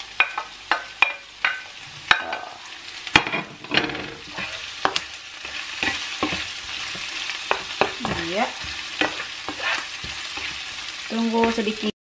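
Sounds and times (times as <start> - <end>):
food sizzling in a frying pan: 0.0 - 12.0
spatula knocking on pan: 3.2 - 10.6.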